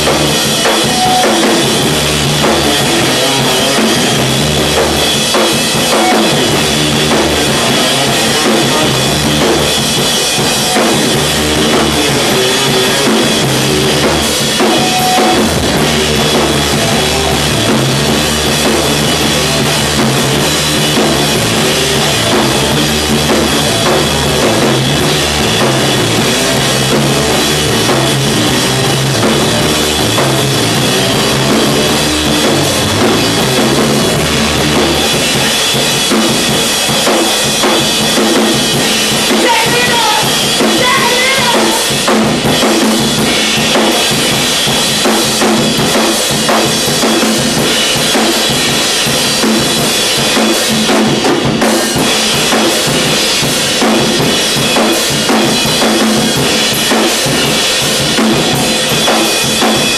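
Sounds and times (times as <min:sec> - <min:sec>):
repeating bass notes: 0:00.0 - 0:36.5
drums: 0:00.0 - 0:59.9
rock band playing live: 0:00.0 - 0:59.9.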